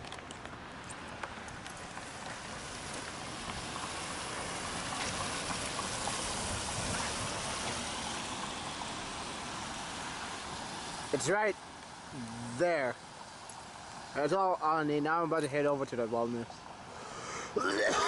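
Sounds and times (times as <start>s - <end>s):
car tyres hissing on wet road: 1.8s - 14.2s.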